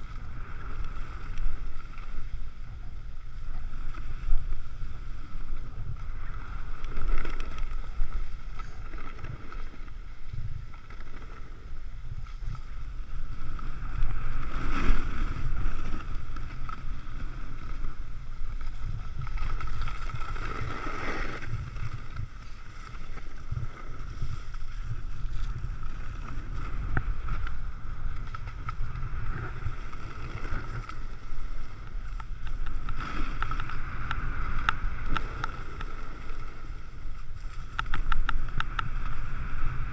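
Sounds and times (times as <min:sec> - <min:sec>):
wind buffeting microphone: 0:00.0 - 0:39.9
snow sliding hiss: 0:11.0 - 0:39.9.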